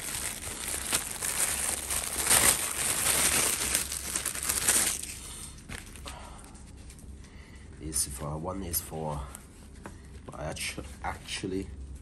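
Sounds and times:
plastic wrapping crinkling: 0.0 - 7.1.

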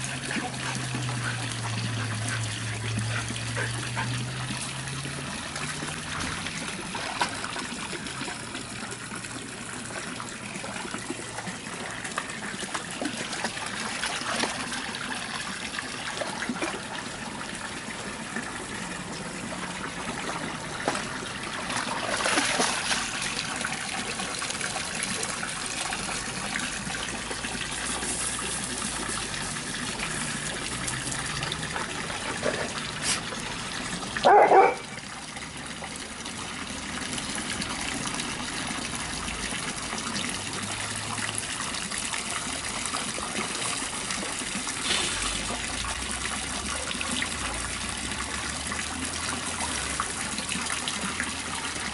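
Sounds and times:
water trickling: 0.0 - 51.9
dog bark: 34.2 - 34.9.

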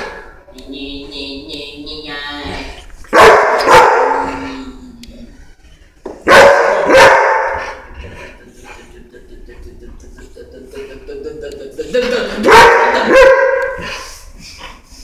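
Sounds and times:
dog barking: 3.1 - 4.4, 6.2 - 7.9, 12.4 - 14.1.

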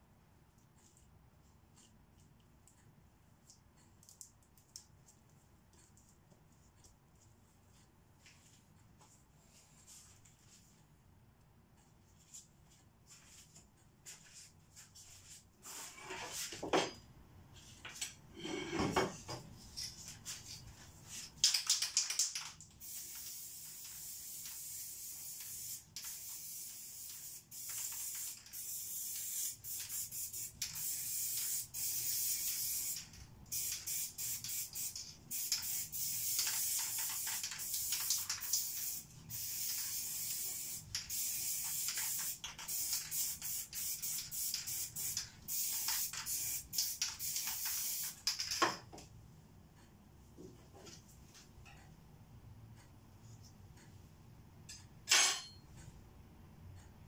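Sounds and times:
spray paint can hissing: 21.4 - 48.5.

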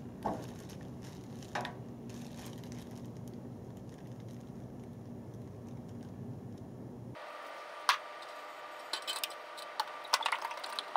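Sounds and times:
steady low hum: 0.0 - 10.9
plastic wrapper handling: 0.2 - 6.2.

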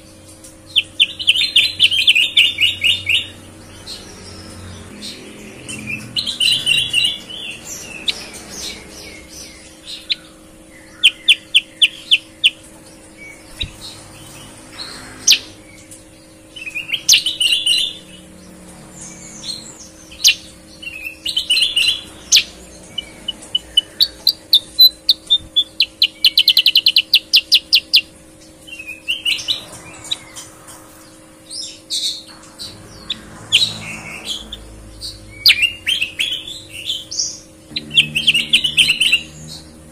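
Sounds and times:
bird chips and trills: 0.0 - 39.9.

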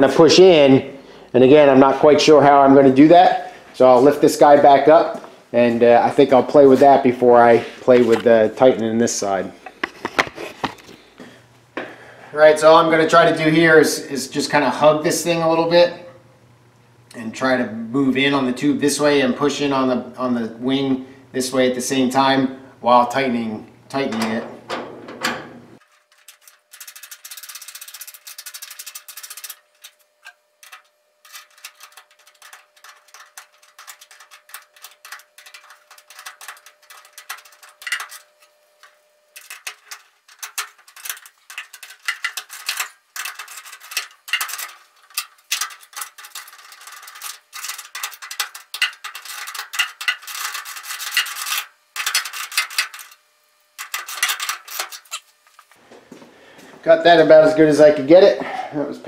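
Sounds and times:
wrench clicking and scraping: 25.2 - 53.2, 53.8 - 55.7.

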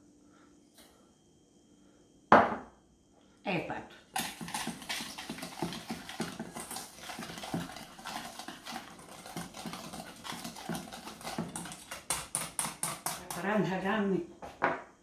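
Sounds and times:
fork beating eggs in metal bowl: 4.1 - 13.8.

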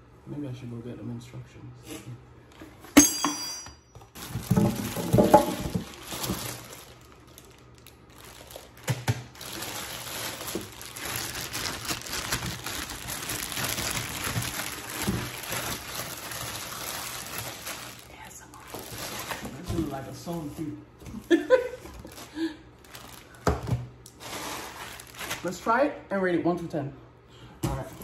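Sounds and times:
plastic bags crinkling: 4.0 - 25.7.

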